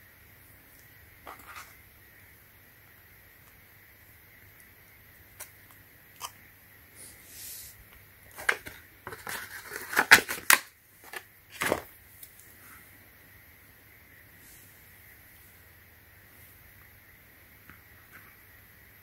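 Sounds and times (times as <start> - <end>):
plastic packaging crackling: 8.3 - 11.9.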